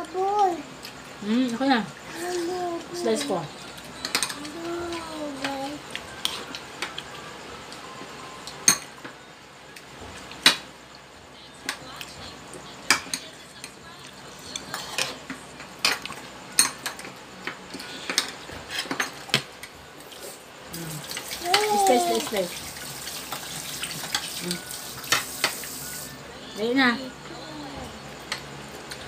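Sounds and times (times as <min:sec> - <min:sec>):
cutlery clinking against plates: 0:04.0 - 0:04.6, 0:08.4 - 0:09.1, 0:14.5 - 0:19.8, 0:23.2 - 0:24.4, 0:25.0 - 0:25.7.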